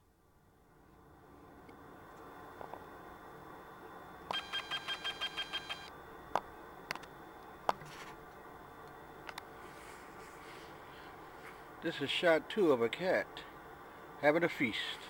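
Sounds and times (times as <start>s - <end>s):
rapid electronic beeps: 4.4s - 5.9s.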